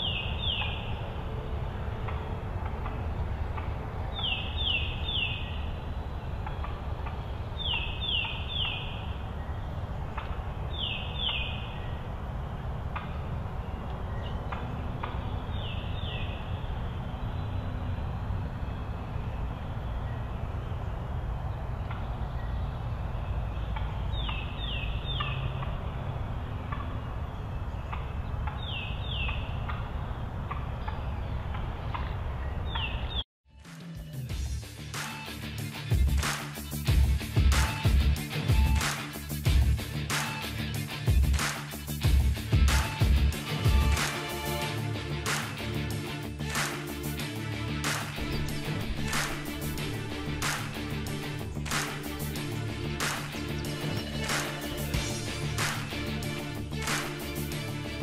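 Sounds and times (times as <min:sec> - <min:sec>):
small bird singing: 0:00.0 - 0:01.2, 0:02.2 - 0:33.2
steady low rumble: 0:00.0 - 0:32.8, 0:42.0 - 0:58.0.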